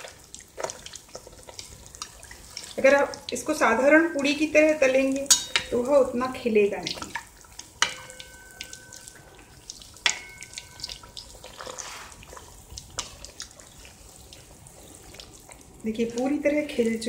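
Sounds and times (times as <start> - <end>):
ghee sizzling and crackling: 0.0 - 17.0
ladle pouring hot ghee: 5.1 - 16.9
ladle clinking against pan: 5.3 - 5.8, 7.8 - 9.0, 10.1 - 10.9.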